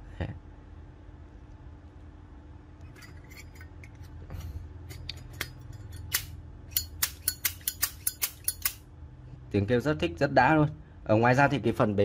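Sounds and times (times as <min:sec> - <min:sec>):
light metallic clicks and clinks: 0:04.9 - 0:08.8.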